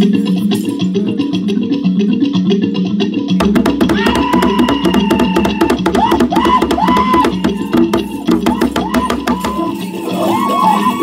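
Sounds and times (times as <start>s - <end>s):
hand drum beaten: 3.4s - 9.8s.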